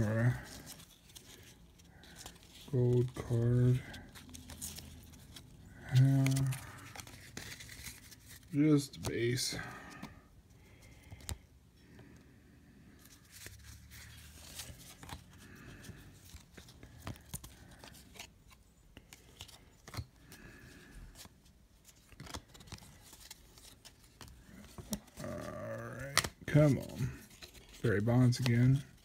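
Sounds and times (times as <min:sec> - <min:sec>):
cards sliding and rustling: 0:00.0 - 0:11.5, 0:12.9 - 0:29.0
card edges clicking: 0:26.0 - 0:26.8.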